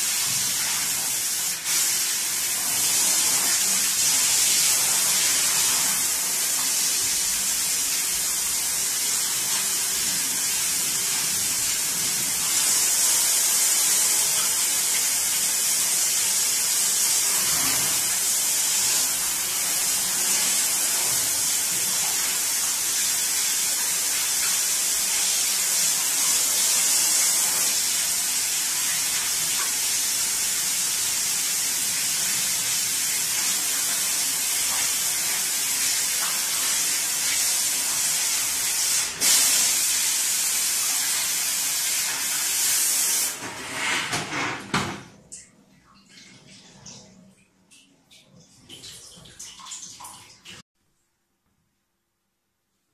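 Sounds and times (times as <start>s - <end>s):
hose spray nozzle hissing: 36.6s - 41.2s.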